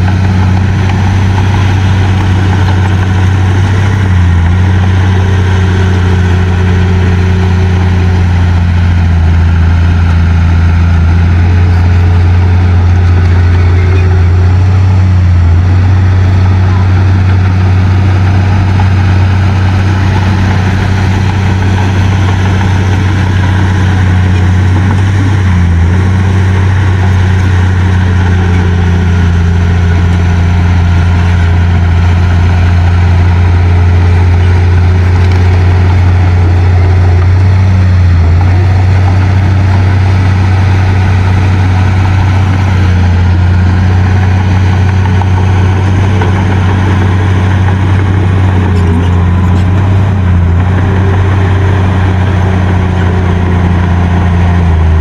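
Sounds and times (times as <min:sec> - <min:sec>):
diesel engine droning: 0:00.0 - 0:55.0.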